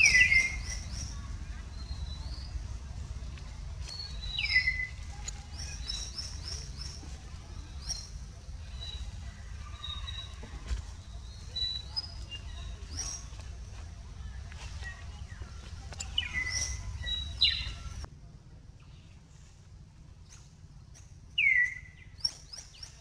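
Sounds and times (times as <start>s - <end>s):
high-pitched chirping calls: 0.0s - 2.7s, 3.8s - 10.4s, 14.6s - 18.1s
steady low rumble: 0.0s - 22.2s.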